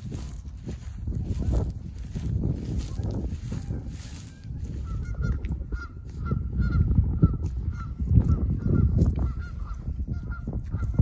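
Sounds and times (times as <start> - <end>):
wind rumbling on microphone: 0.0 - 11.0
geese honking: 2.7 - 11.0.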